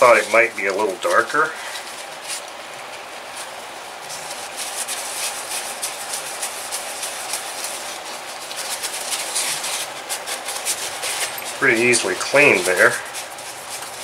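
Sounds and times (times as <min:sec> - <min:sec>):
paper towel rubbing on metal: 0:00.0 - 0:14.0.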